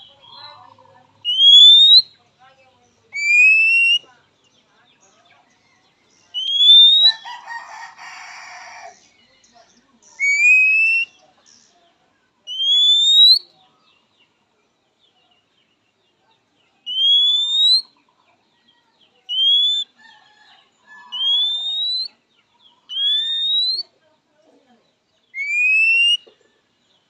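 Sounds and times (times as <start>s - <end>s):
bird whistling rising notes: 6.4s - 7.2s, 10.2s - 11.2s, 12.5s - 13.4s, 16.9s - 17.9s, 19.3s - 19.9s, 21.2s - 22.1s, 22.9s - 23.8s, 25.4s - 26.3s.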